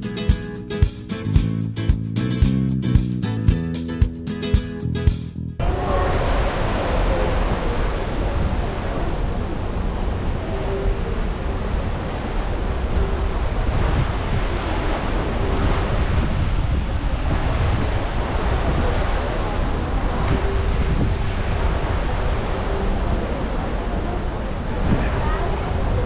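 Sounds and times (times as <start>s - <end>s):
rush of the sea: 5.6s - 26.0s
wind buffeting microphone: 11.6s - 26.0s.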